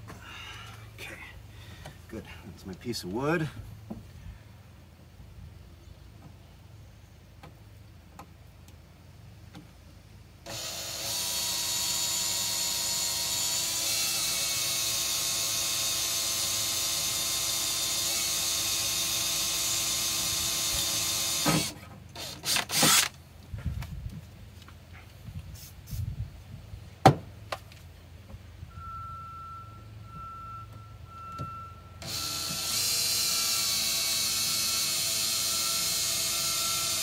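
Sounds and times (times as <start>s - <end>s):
drill boring through sheet metal: 10.5s - 23.1s, 32.0s - 37.0s.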